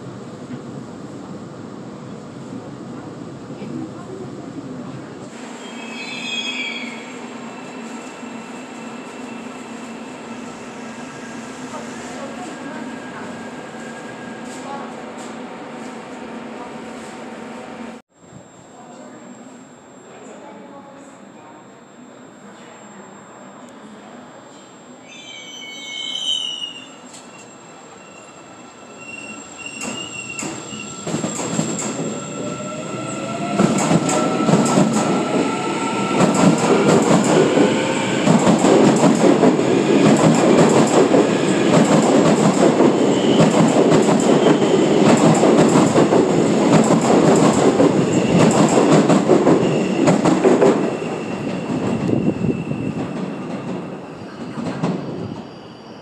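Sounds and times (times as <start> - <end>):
train wheels clacking on rails: 33.6 - 52.1.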